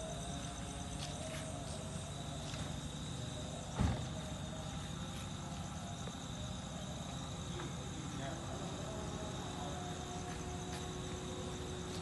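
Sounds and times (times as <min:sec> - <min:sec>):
night insects chirping: 0:00.0 - 0:12.0
dull thump: 0:03.7 - 0:04.2.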